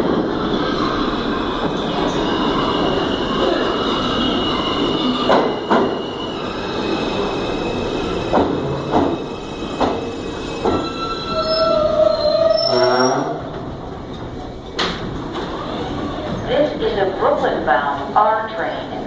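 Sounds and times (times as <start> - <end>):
wheels squealing on rails: 0.3 - 13.9
train wheels clacking over joints: 8.3 - 11.0.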